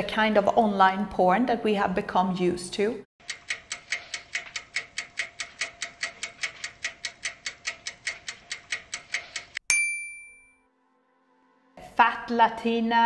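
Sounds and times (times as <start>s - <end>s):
rapid even ticking: 3.2s - 9.6s.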